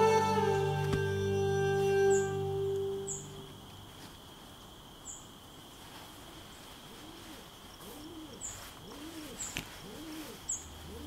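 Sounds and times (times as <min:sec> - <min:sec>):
faint high bird chirps: 0:00.0 - 0:03.7
dove cooing: 0:06.9 - 0:11.0.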